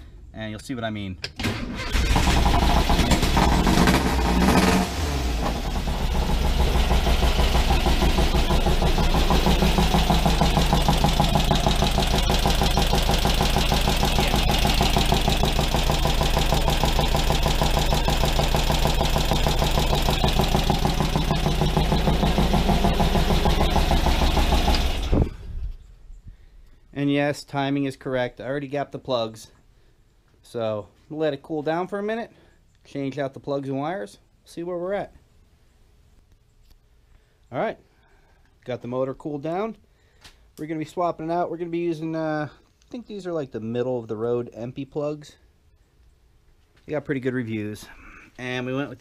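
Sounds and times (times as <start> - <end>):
engine idling with pulsing beat: 2.6 - 25.1.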